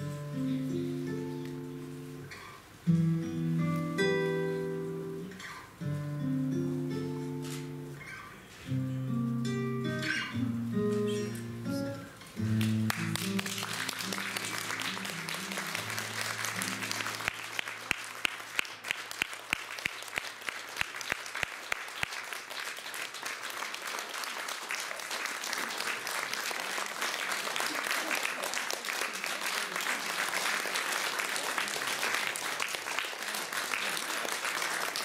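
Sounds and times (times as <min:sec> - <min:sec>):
live music held notes: 0:00.0 - 0:18.7
audience applause: 0:12.4 - 0:35.0
rhythmic clapping: 0:12.4 - 0:35.0.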